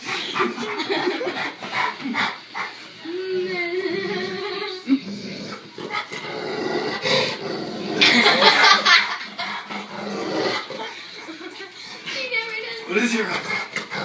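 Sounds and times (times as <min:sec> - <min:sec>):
dog grunting: 0:00.0 - 0:02.8, 0:03.8 - 0:11.1, 0:13.0 - 0:14.0.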